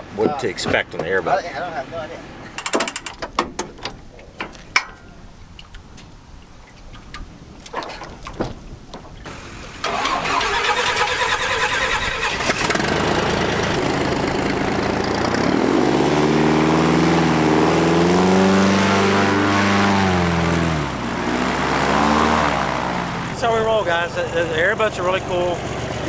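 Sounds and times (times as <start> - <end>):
airboat engine and propeller: 11.1 - 26.0.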